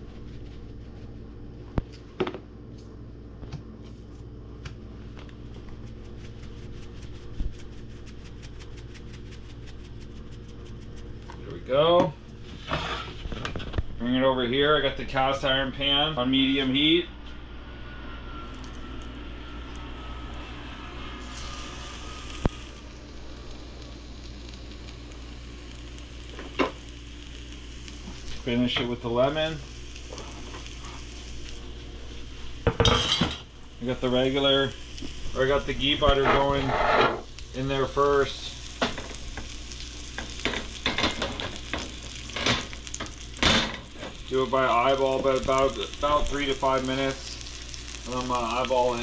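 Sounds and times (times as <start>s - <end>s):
steady low hum: 0.0s - 49.0s
fish sizzling in a pan: 21.2s - 49.0s.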